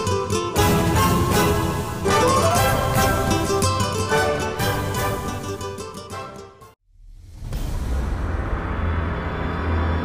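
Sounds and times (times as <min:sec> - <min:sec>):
low droning background music: 0:07.3 - 0:10.0.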